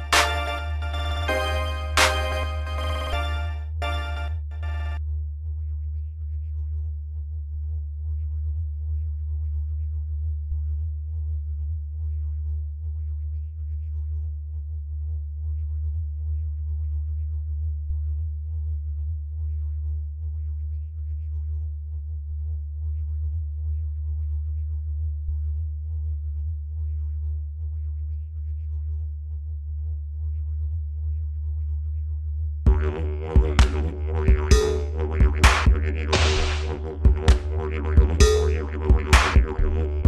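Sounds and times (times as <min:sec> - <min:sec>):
electronic ambient music: 0:00.0 - 0:05.0, 0:32.7 - 0:40.0.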